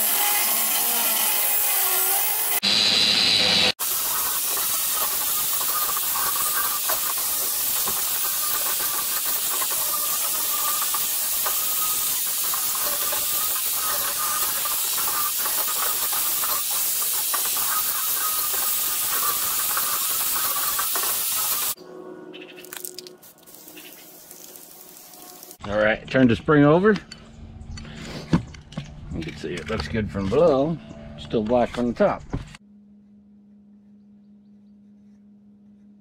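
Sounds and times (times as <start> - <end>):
angle grinder sanding steel: 0.0 - 21.8.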